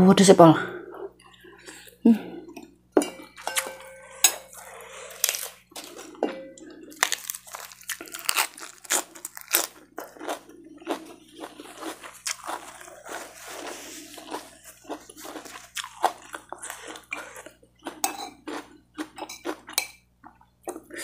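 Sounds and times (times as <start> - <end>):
crunching lettuce: 4.6 - 6.2, 6.9 - 19.6.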